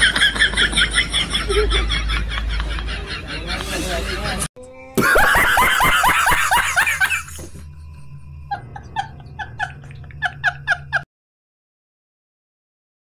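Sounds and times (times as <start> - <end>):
man laughing hard: 0.0 - 3.6, 5.0 - 7.7, 8.5 - 11.0.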